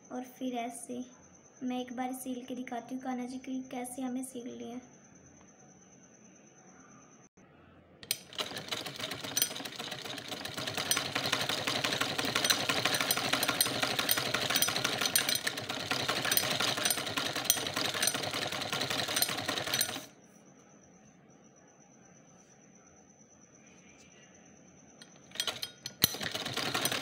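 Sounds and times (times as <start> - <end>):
sewing machine stitching: 8.0 - 20.1, 25.1 - 27.0.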